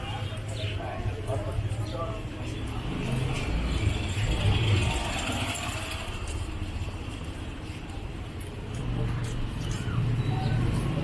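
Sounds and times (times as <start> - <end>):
street noise: 0.0 - 11.0
auto-rickshaw engine passing: 1.0 - 11.0.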